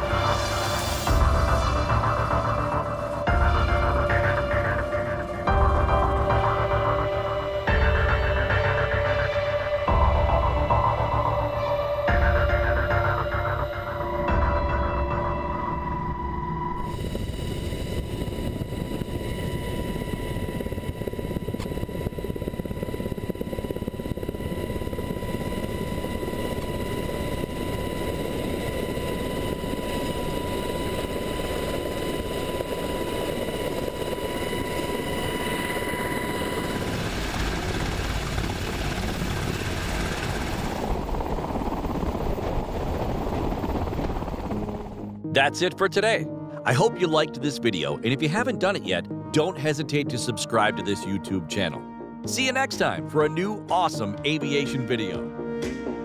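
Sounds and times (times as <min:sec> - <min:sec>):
high whine: 0:00.0 - 0:44.8
helicopter rotor and turbine noise: 0:00.0 - 0:56.0.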